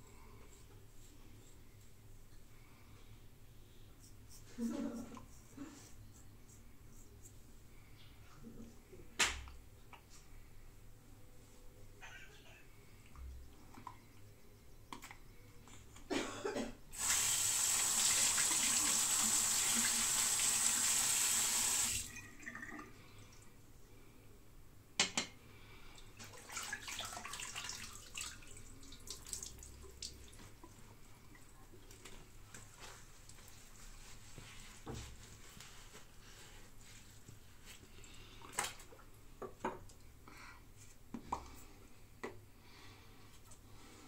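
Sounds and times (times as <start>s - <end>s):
faint handling sounds: 30.2s - 44.0s.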